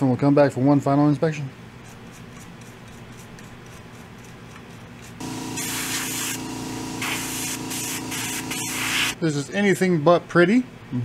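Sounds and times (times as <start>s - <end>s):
room hum: 0.0s - 11.0s
loud hissing blasts of air: 5.2s - 9.2s
small electric motor humming: 5.2s - 9.2s.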